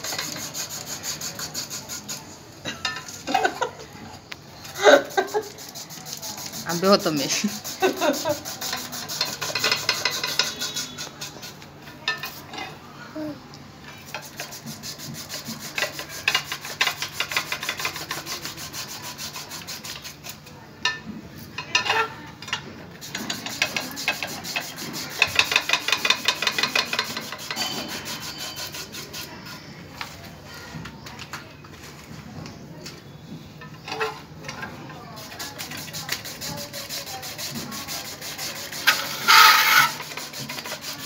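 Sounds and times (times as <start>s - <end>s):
slicer blades rasping potato: 0.0s - 2.3s, 5.4s - 11.6s, 14.1s - 20.4s, 23.0s - 29.5s, 35.2s - 41.0s.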